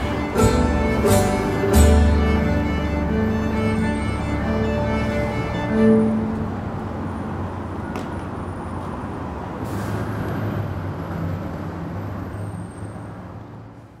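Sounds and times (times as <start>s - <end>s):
heavy vehicle engine rumbling: 0.0s - 14.0s
air brake hiss: 9.6s - 10.3s.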